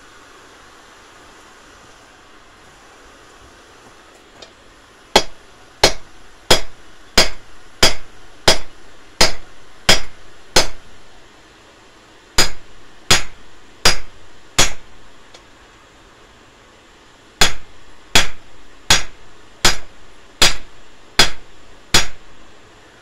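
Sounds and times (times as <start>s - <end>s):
hammer striking steel on anvil: 5.2s - 10.8s, 12.4s - 14.9s, 17.4s - 22.2s.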